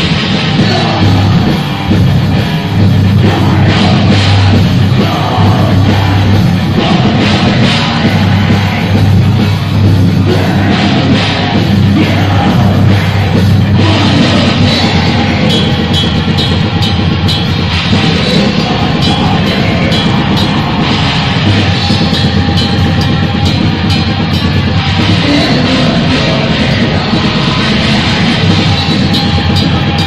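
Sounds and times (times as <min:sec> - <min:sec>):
harsh screamed vocals: 0:00.0 - 0:23.8
distorted electric guitar: 0:00.0 - 0:30.0
drum kit: 0:00.0 - 0:30.0.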